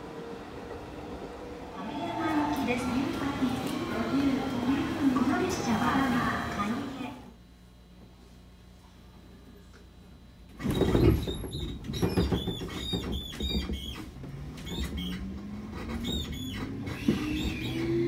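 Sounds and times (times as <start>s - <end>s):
traction motor whine: 0.0s - 7.3s
train running noise: 0.0s - 7.3s.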